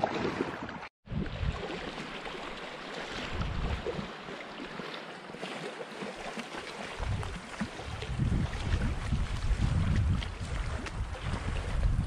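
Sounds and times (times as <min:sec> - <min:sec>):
water lapping against rocky shore: 0:00.0 - 0:12.0
wind buffeting microphone: 0:01.1 - 0:01.7, 0:03.3 - 0:04.1, 0:06.9 - 0:12.0.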